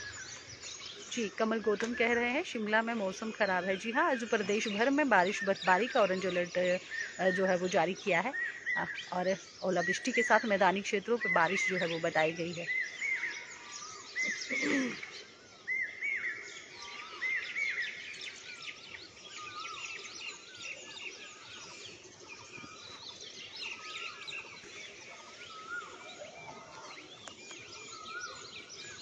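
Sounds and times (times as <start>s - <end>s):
birds chirping and singing: 0.0s - 29.0s.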